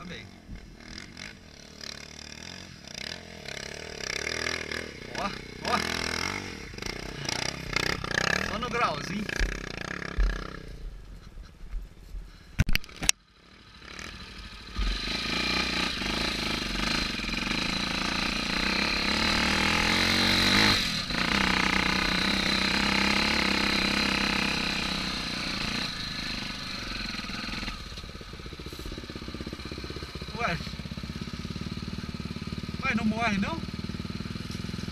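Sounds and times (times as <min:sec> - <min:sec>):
motorcycle engine pulling uphill: 0:00.0 - 0:11.6, 0:12.8 - 0:34.9.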